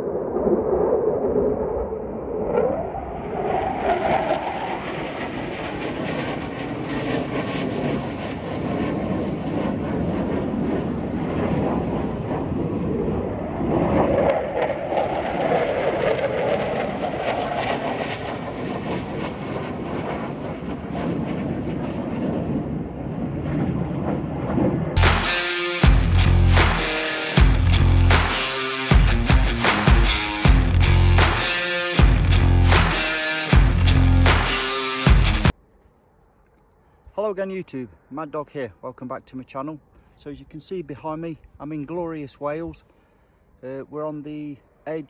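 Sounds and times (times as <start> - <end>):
jet fighter engine roar: 0.0 - 35.6.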